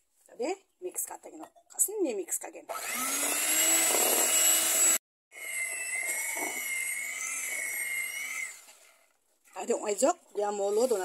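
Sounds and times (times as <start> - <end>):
electric hand mixer whining: 2.7 - 9.1.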